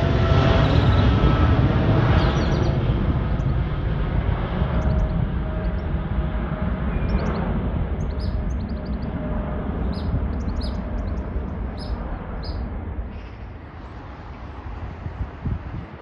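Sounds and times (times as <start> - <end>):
jet engines rumbling: 0.0 - 16.0
birds chirping: 0.4 - 3.9, 4.6 - 12.8.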